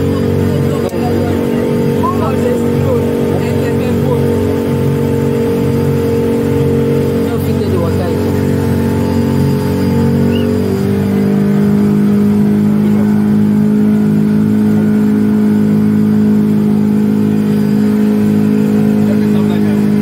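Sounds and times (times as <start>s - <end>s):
speedboat engine running: 0.0s - 20.0s.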